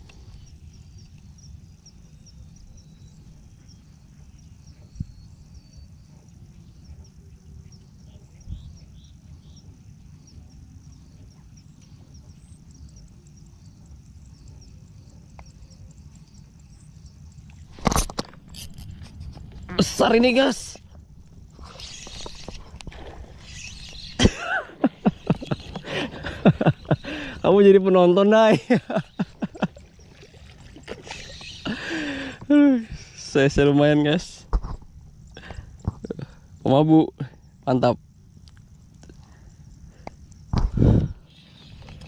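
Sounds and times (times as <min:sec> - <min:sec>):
faint high chirping: 0:00.1 - 0:17.7, 0:19.6 - 0:34.0
wind rumbling on microphone: 0:06.9 - 0:13.0, 0:15.6 - 0:27.6, 0:39.5 - 0:42.0.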